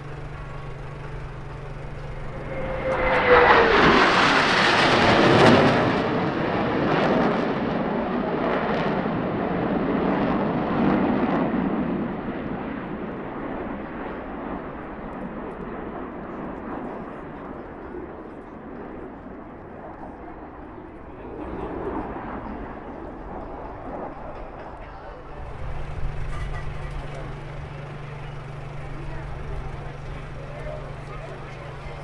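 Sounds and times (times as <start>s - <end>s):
jet flying past: 0.0s - 32.0s.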